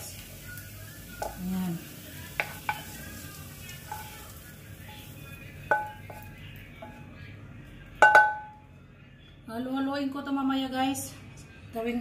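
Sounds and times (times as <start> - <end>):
pan knocking on metal bowl: 2.4 - 2.9, 5.7 - 7.0, 8.0 - 8.6.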